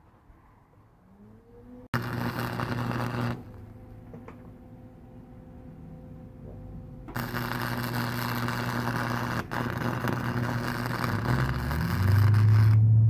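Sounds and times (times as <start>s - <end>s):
low hum: 0.2s - 13.0s
welder arc crackling: 2.0s - 3.9s, 7.1s - 13.0s.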